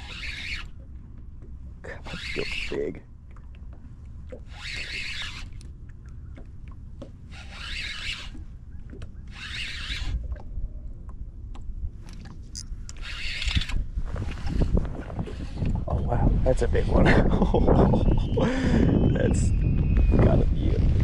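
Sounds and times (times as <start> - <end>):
fishing reel whirring: 0.0 - 0.8, 2.0 - 2.9, 4.4 - 5.7, 7.2 - 8.5, 9.3 - 10.2, 12.8 - 15.8.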